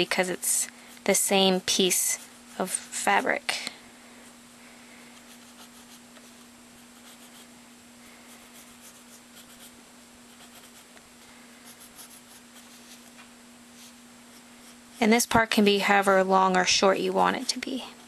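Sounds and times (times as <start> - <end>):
steady low hum: 0.0 - 18.0
pencil scratching on paper: 5.3 - 6.4, 7.0 - 7.4, 8.3 - 9.7, 10.3 - 10.8, 11.6 - 13.1.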